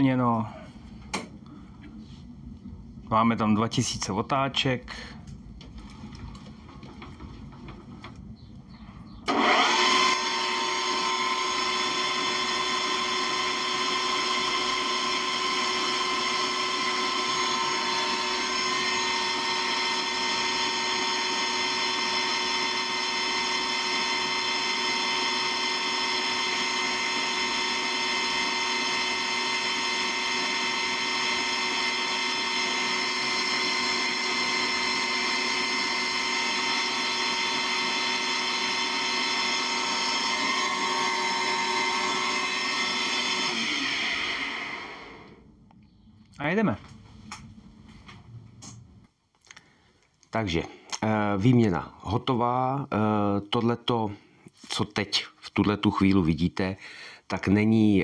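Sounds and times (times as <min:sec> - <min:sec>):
metal lathe gear whine: 0:09.3 - 0:45.4.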